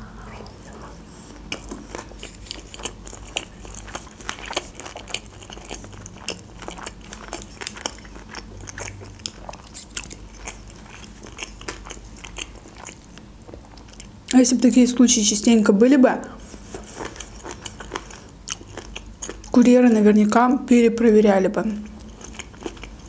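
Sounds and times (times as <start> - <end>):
person chewing food: 1.1 - 14.2, 16.4 - 19.6, 21.8 - 23.0.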